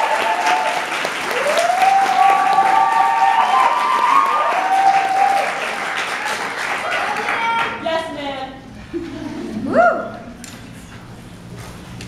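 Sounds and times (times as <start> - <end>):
audience applauding: 0.0 - 7.8
whooping cheers: 0.0 - 7.8.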